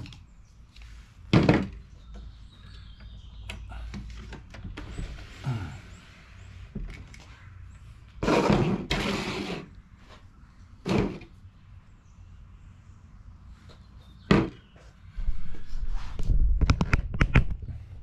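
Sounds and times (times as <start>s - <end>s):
objects scraping on workbench: 8.2s - 9.8s, 10.9s - 11.3s
thump: 14.3s - 14.6s.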